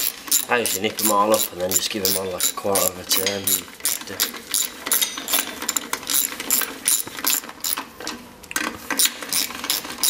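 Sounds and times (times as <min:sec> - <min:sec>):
hand ratchet clicking: 0:00.0 - 0:07.8.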